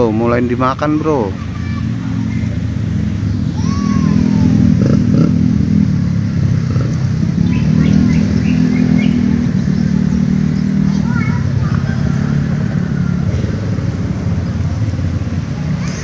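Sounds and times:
engine humming: 0.0s - 16.0s
faint high calls: 3.2s - 5.0s.

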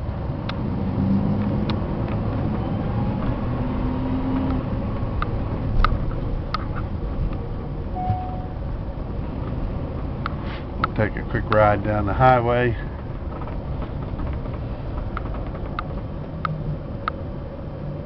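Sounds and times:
truck engine and road rumble: 0.0s - 18.0s
sharp clicks and rattles: 9.4s - 17.3s.

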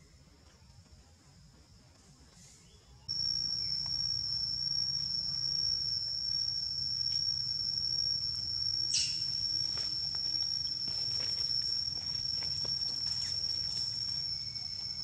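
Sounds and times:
insect trilling: 3.1s - 15.0s.

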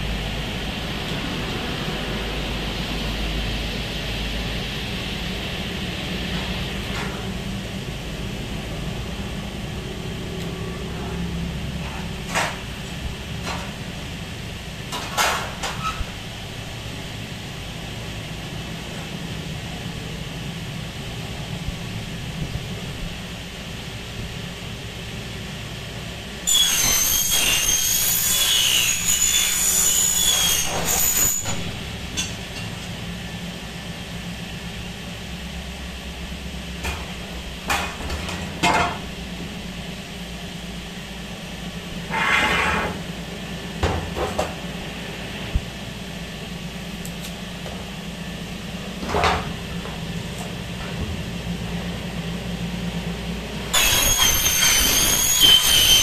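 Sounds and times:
power saw screeching through metal: 26.4s - 31.8s, 42.1s - 43.0s, 53.7s - 56.0s.

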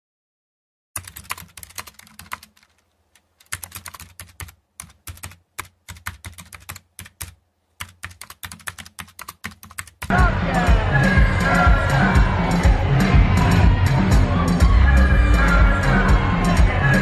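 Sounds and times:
computer keyboard typing: 1.0s - 10.1s.

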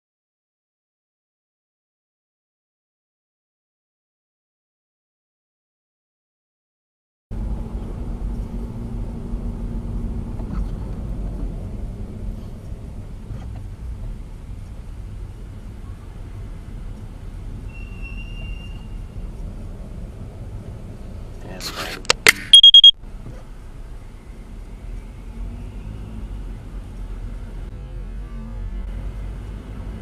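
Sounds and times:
car driving low rumble: 7.3s - 22.2s.

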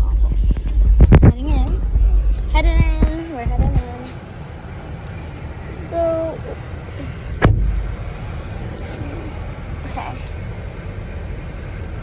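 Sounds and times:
vehicle idling rumble: 0.0s - 12.0s
van door slamming: 7.4s - 8.0s.

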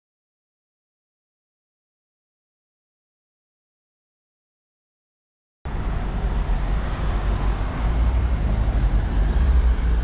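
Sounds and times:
road traffic rumble: 5.7s - 10.0s.

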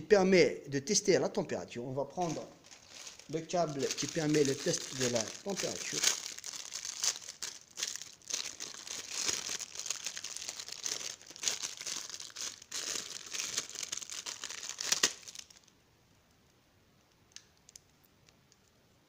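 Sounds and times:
plastic bag crinkling: 2.2s - 15.7s.

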